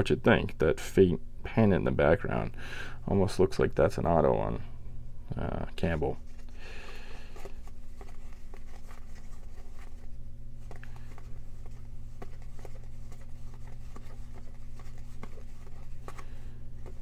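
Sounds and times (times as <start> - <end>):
low hum: 2.3 - 17.0
cards flicking and scraping: 6.2 - 17.0.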